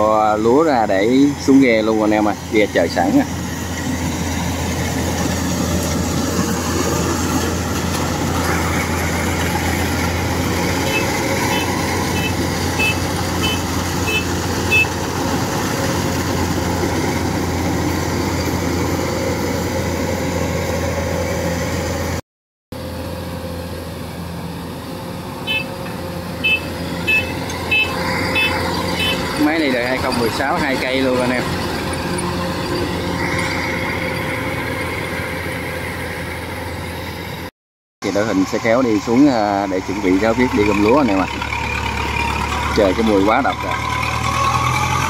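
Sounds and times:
combine harvester engines: 0.0 - 22.2, 22.8 - 45.0
short high electronic beeps: 26.4 - 29.2.

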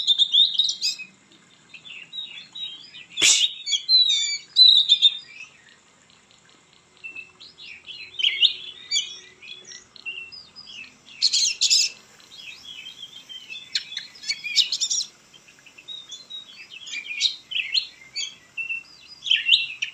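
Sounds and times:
bird singing whistled phrases: 2.0 - 5.5, 7.1 - 15.1, 15.8 - 19.9.

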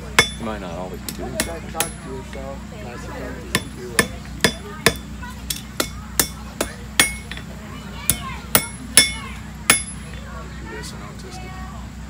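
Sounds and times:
hammer striking iron on anvil: 0.0 - 2.2, 3.5 - 10.2.

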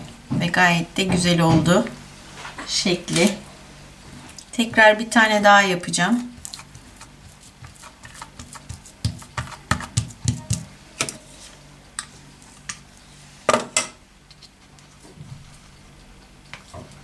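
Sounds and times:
hands patting dough: 6.1 - 10.7.

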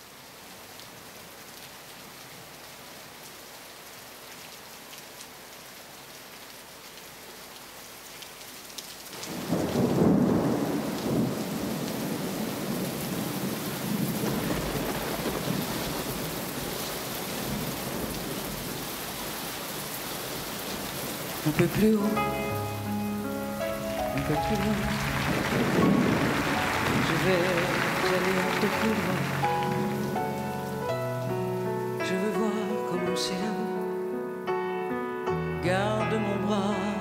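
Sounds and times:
rain hiss: 0.0 - 33.9
thunder rumbling: 9.3 - 16.7, 22.1 - 30.8.

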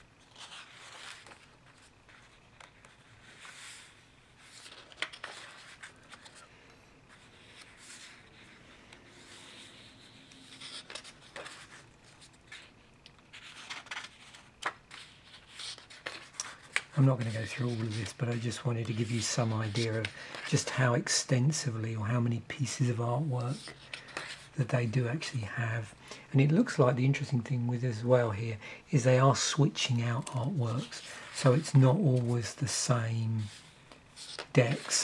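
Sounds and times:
book pages turning: 0.0 - 6.5, 7.1 - 21.0, 33.4 - 35.0.

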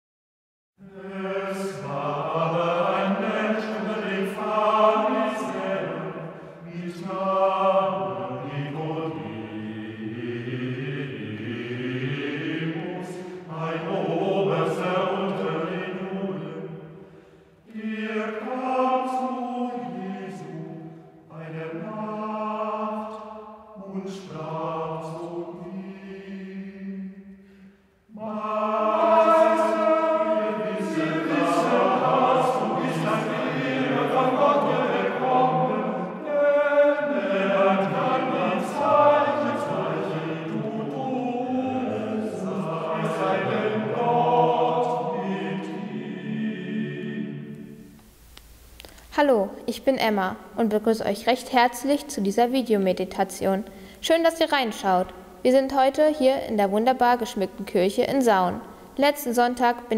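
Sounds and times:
voices singing slow chant: 0.8 - 48.1.

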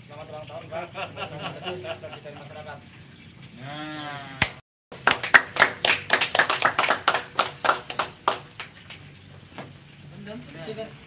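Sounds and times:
group clapping hands: 4.4 - 9.0.

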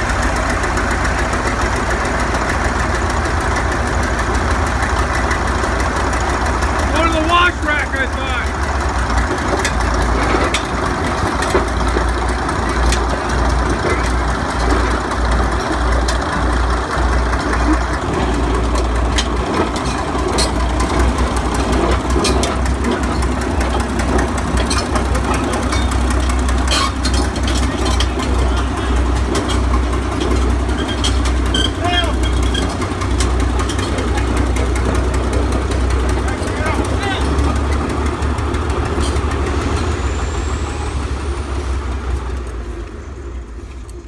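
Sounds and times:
diesel engines running: 0.0 - 44.0
sharp metal clanks: 18.2 - 34.8.

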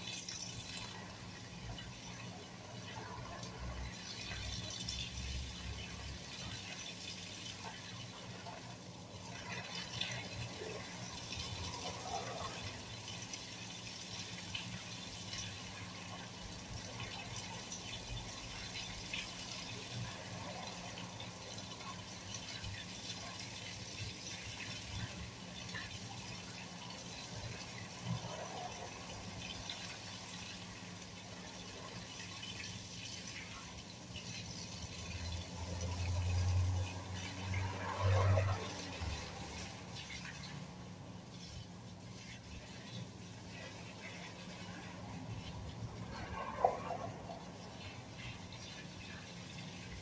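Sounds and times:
hose spraying water on leaves: 0.0 - 50.0.

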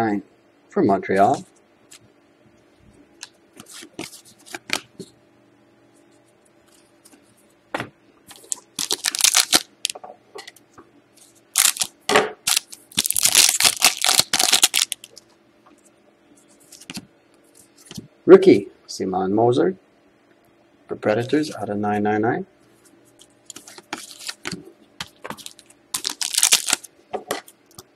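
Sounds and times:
cards clicking and rustling: 3.2 - 5.1, 8.3 - 10.0, 12.5 - 15.2, 16.6 - 17.1, 23.2 - 27.9
foil wrapper crinkling: 8.3 - 10.0, 11.5 - 15.2, 23.1 - 26.9.

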